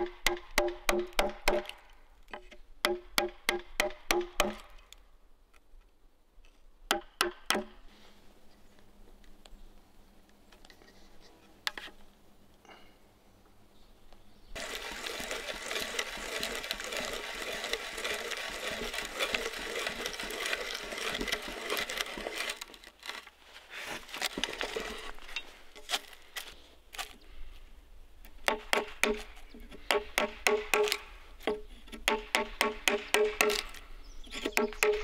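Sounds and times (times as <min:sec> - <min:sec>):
auger bit boring into wood: 0:14.6 - 0:23.2, 0:24.1 - 0:25.2.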